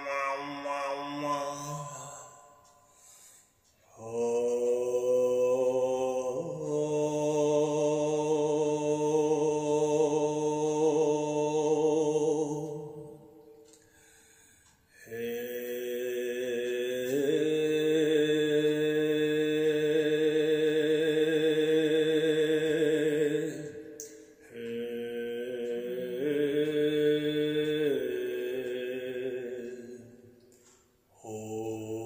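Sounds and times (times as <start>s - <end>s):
breath: 2.8s - 3.7s, 13.7s - 15.0s.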